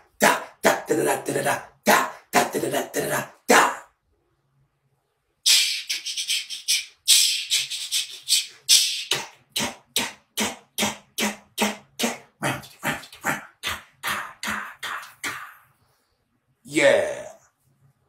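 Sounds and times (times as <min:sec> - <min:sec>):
man making hissing mouth sounds: 0:05.4 - 0:15.8.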